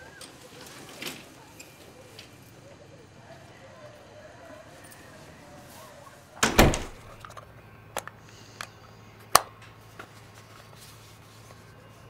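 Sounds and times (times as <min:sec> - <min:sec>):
plastic clicks: 0:06.9 - 0:09.8.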